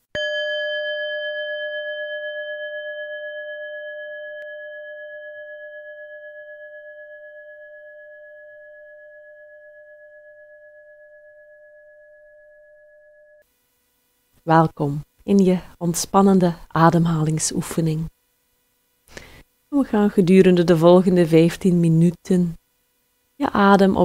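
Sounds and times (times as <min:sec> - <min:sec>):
singing bowl ringing: 0:00.1 - 0:13.4.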